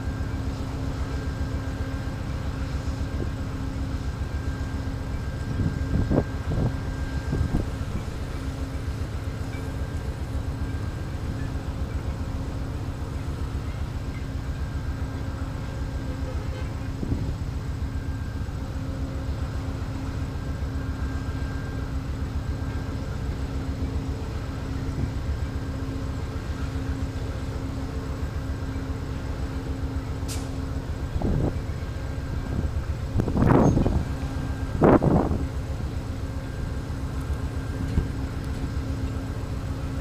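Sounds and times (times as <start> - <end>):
diesel locomotive idling: 0.0 - 40.0
wind rumble on microphone: 5.3 - 9.0, 16.5 - 17.7, 31.0 - 35.7.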